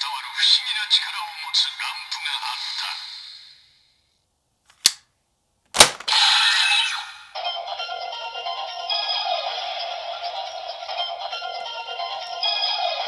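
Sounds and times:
sharp plastic clicks: 0:04.7 - 0:05.1, 0:05.7 - 0:06.1
looping electronic standby music: 0:07.4 - 0:13.0.

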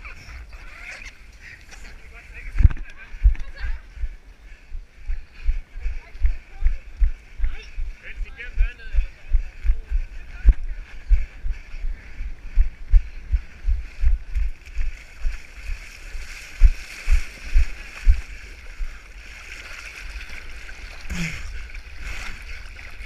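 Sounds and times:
water splashing and sloshing: 0:13.2 - 0:23.0.

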